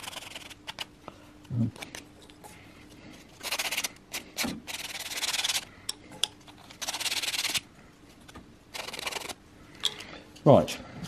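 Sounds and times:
sandpaper rubbing wood: 0:03.4 - 0:03.9, 0:04.7 - 0:05.6, 0:06.8 - 0:07.6, 0:08.8 - 0:09.4.

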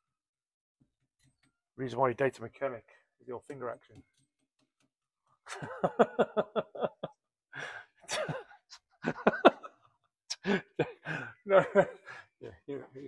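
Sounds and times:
man laughing: 0:05.5 - 0:07.2, 0:08.0 - 0:13.0
breathy sighs: 0:07.5 - 0:08.0, 0:10.3 - 0:11.4.

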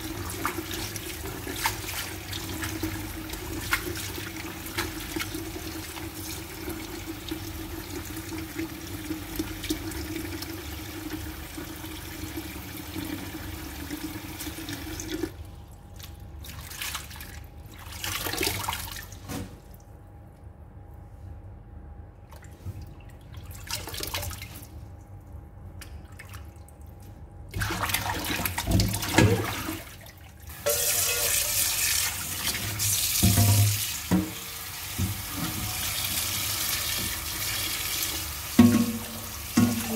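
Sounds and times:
tap water running into metal bowl: 0:30.6 - 0:39.9.

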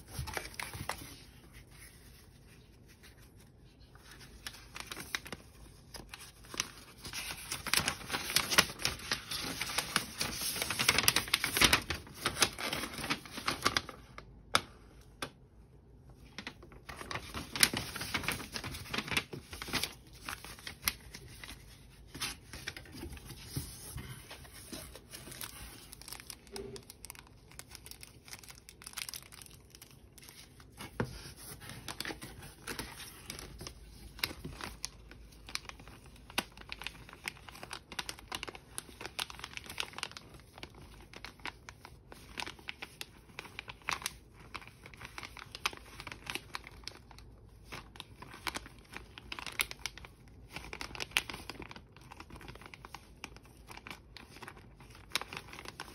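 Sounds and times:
packaging crinkling and tearing: 0:00.0 - 0:15.4, 0:16.2 - 0:55.9.

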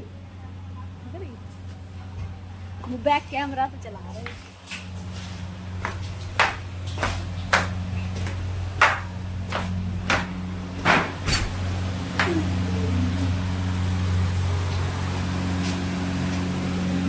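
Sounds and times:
footsteps on concrete stairs: 0:04.2 - 0:12.4
low hum: 0:05.0 - 0:17.0.

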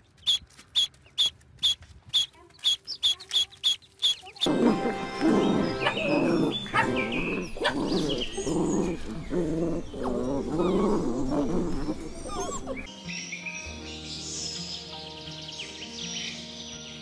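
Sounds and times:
dog howling: 0:04.4 - 0:12.9
dog barking: 0:05.7 - 0:06.1, 0:06.7 - 0:08.1.

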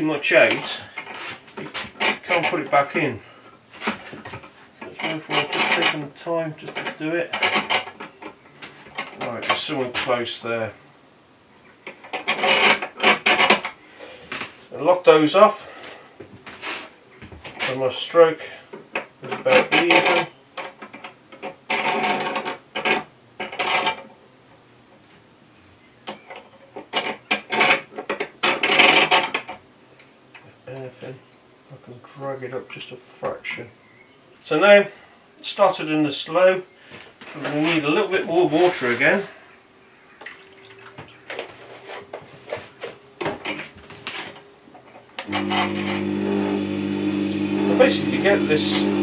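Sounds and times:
truing tool scraping grinding stone: 0:12.0 - 0:13.6, 0:45.3 - 0:46.4
sharpener motor humming: 0:45.3 - 0:49.0.

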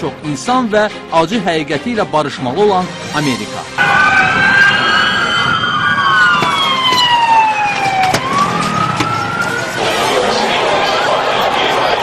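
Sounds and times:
police siren wailing: 0:03.8 - 0:12.0.

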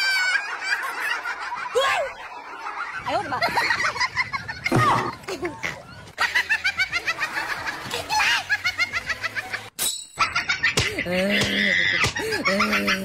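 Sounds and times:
person laughing: 0:10.2 - 0:13.0.

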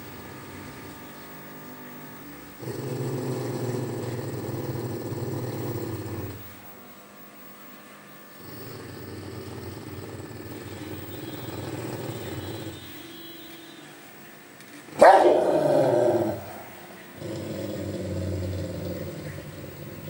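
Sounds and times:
dog growling low: 0:02.6 - 0:06.5, 0:08.4 - 0:12.8, 0:15.0 - 0:20.0
dog barking loudly: 0:15.0 - 0:16.5.

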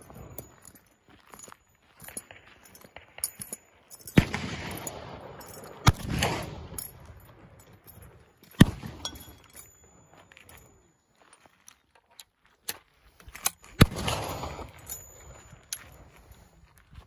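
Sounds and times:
gunshots with echo: 0:04.2 - 0:07.2, 0:08.6 - 0:09.2, 0:13.8 - 0:14.9.

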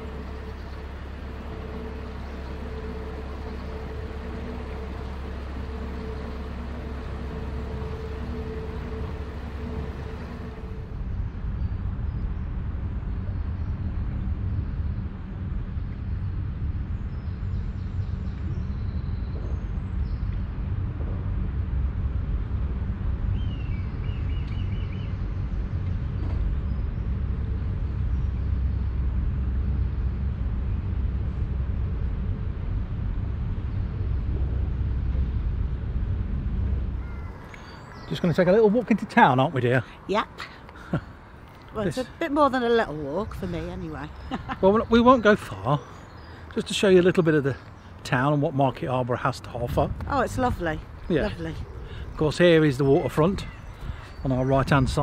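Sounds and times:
bird chirps: 0:00.0 - 0:10.8, 0:23.3 - 0:28.9, 0:37.0 - 0:49.0, 0:50.2 - 0:55.0
boat engine running: 0:00.0 - 0:55.0
steady low rumble: 0:00.0 - 0:55.0.

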